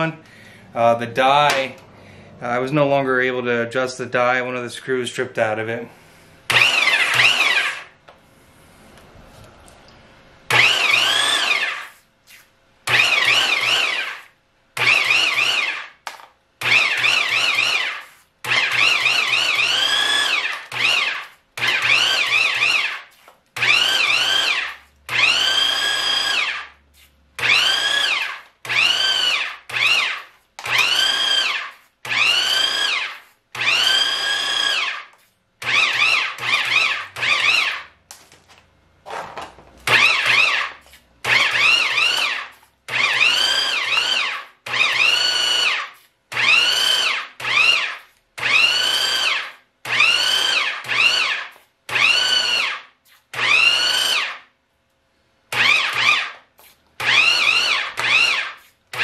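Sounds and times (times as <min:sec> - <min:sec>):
pipe threader motor whining: 0:06.5 - 0:07.9, 0:10.5 - 0:12.0, 0:12.8 - 0:15.9, 0:16.6 - 0:26.8, 0:27.4 - 0:37.9, 0:39.8 - 0:54.3, 0:55.5 - 0:56.3, 0:57.0 - 0:59.0.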